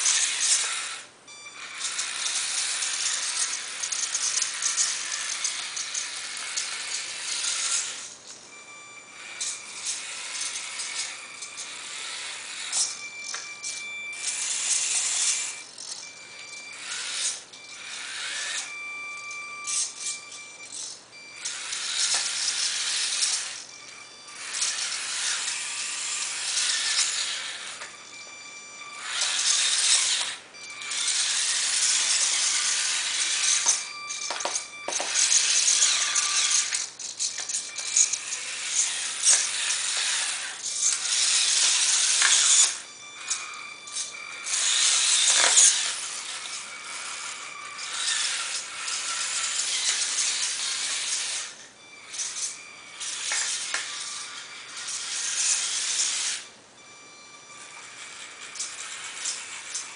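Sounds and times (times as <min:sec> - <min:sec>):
toy car electric motor whirring: 0:00.0 - 0:59.9.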